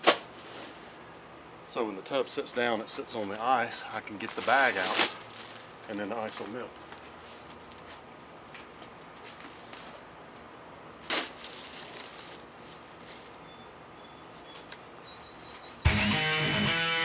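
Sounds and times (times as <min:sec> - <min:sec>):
bag of ice crunching: 0:04.0 - 0:06.4, 0:11.0 - 0:13.3.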